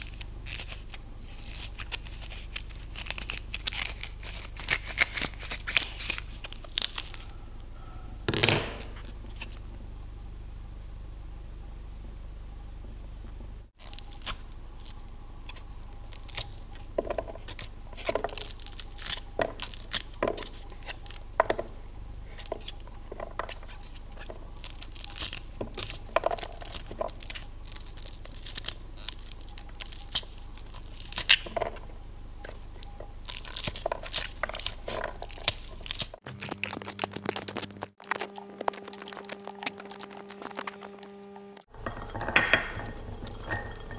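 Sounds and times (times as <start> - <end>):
corn kernels snapping: 0.0 - 7.3, 13.8 - 21.2, 24.6 - 31.6, 33.2 - 41.6.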